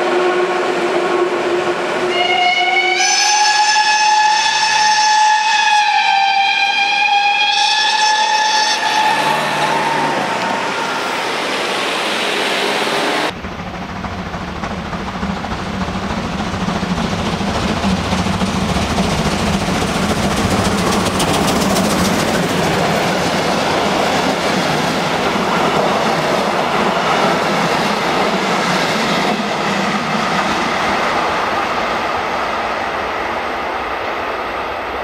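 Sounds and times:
steam locomotive whistle: 0:00.0 - 0:13.3
distant steam locomotive rumble: 0:00.0 - 0:35.0
steam hissing: 0:06.8 - 0:32.3.

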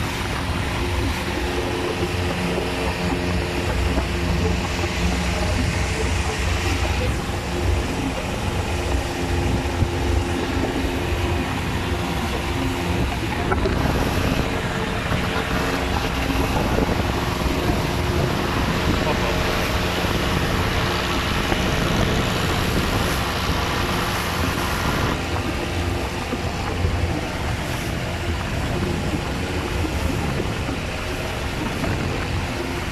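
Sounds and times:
boat engine running: 0:00.0 - 0:32.9
wind and water rushing: 0:00.0 - 0:32.9.

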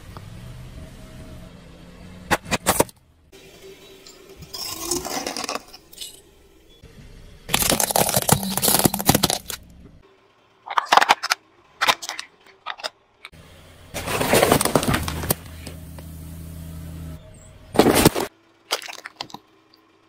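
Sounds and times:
things crushed under car tyre: 0:07.5 - 0:09.6, 0:13.9 - 0:15.8, 0:17.7 - 0:19.4.

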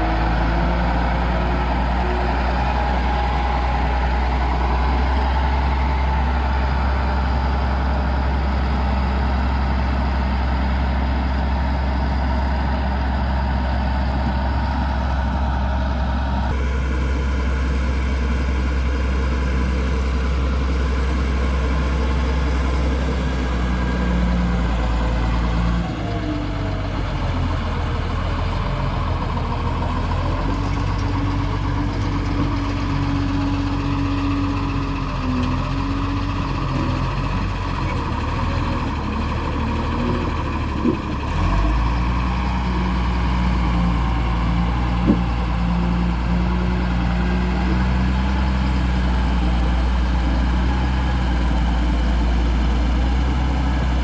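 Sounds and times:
diesel engine running: 0:00.0 - 0:54.0.

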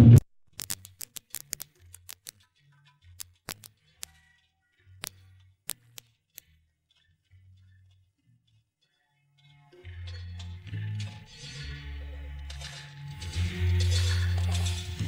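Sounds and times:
vinyl record clicks and pops: 0:00.0 - 0:02.5, 0:03.1 - 0:04.2, 0:05.0 - 0:06.5.

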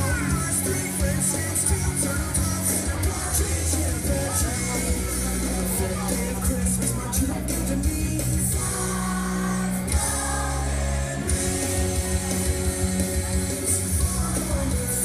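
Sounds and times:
instrumental accompaniment with bass: 0:00.0 - 0:15.0
children singing: 0:08.4 - 0:15.0.

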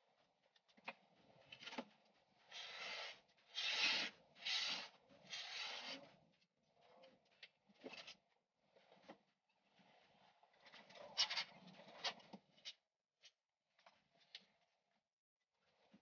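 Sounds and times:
rough rubbing on foam: 0:02.4 - 0:06.3.

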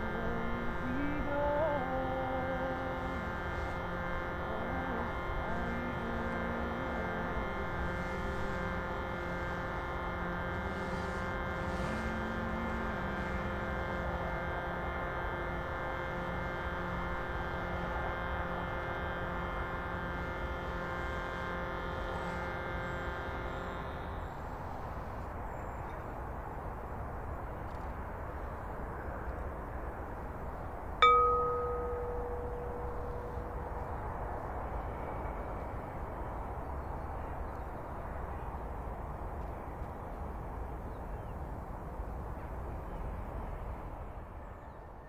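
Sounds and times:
voice holding long low notes: 0:00.0 - 0:24.2
many-toned musical drone: 0:00.0 - 0:26.4, 0:28.8 - 0:39.0.

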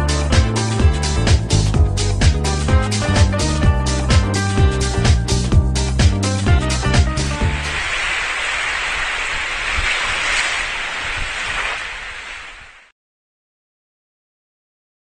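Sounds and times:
steady rushing noise: 0:07.3 - 0:12.9.

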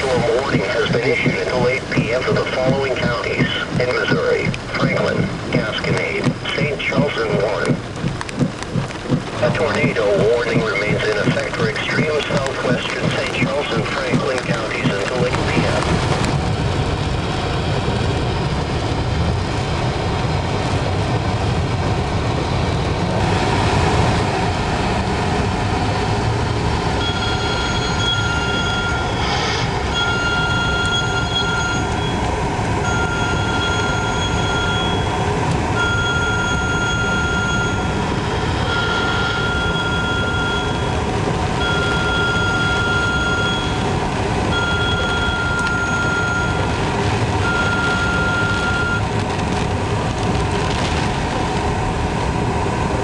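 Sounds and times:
car engine and tyre road noise: 0:00.0 - 0:53.0
high electronic beeps: 0:09.4 - 0:15.8, 0:27.0 - 0:29.2, 0:29.9 - 0:32.2, 0:32.8 - 0:35.2, 0:35.8 - 0:38.0, 0:38.6 - 0:41.0, 0:41.6 - 0:43.9, 0:44.5 - 0:46.7, 0:47.4 - 0:49.0.

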